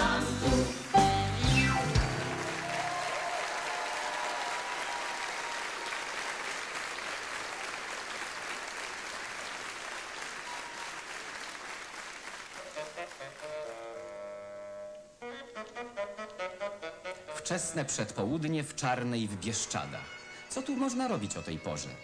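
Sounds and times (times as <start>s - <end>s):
audience applauding: 1.9s - 14.3s.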